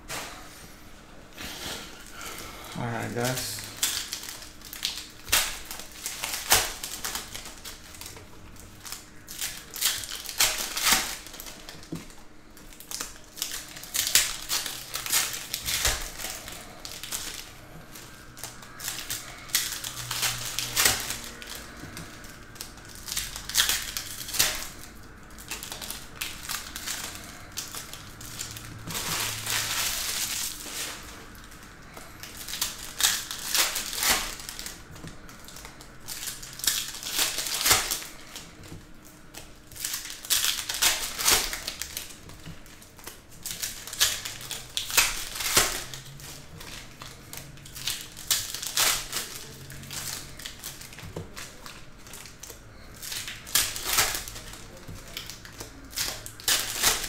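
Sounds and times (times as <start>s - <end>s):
foil wrappers crinkling: 1.4s - 57.0s.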